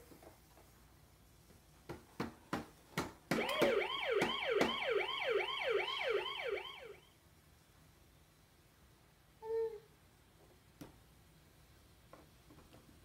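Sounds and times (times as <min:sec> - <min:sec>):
toy electronic siren wailing: 0:03.4 - 0:07.1.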